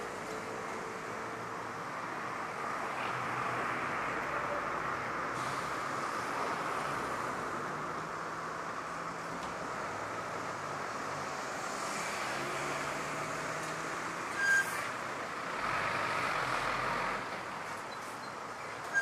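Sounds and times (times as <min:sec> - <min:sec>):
road traffic hum: 0:00.0 - 0:19.0.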